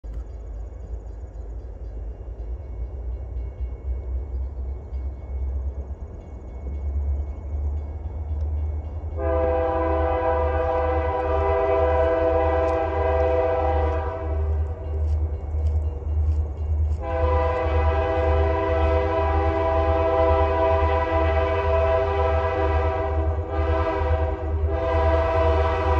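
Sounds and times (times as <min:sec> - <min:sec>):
locomotive air horn blasts: 0:09.2 - 0:14.8, 0:17.0 - 0:25.9.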